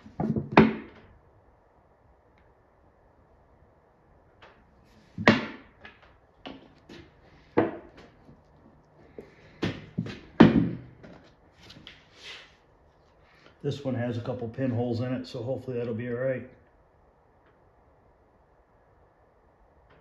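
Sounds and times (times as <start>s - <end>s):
objects knocking on wooden bench: 7.6s - 8.1s, 9.6s - 11.2s.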